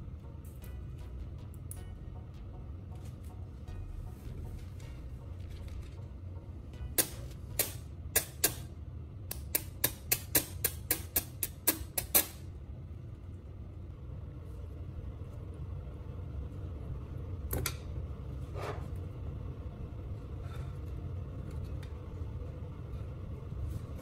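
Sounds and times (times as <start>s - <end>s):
welding sparks snapping: 7.0s - 8.7s.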